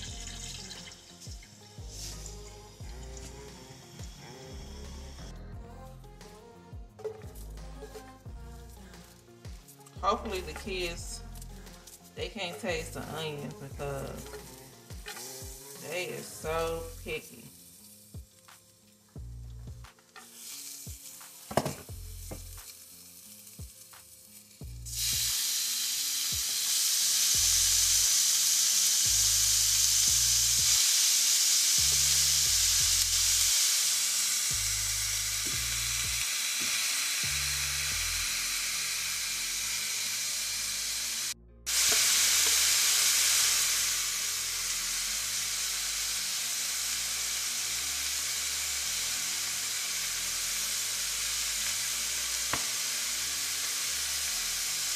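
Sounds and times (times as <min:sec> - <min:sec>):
meat sizzling in a pan: 0:00.0 - 0:05.3, 0:08.7 - 0:54.9
knocks on a pan: 0:21.5 - 0:21.9.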